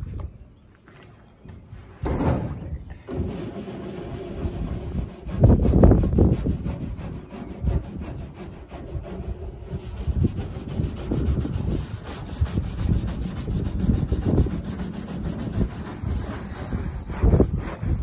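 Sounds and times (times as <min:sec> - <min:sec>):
wind rumbling on microphone: 0:00.0 - 0:18.0
hands and tools scraping roof: 0:01.5 - 0:18.0.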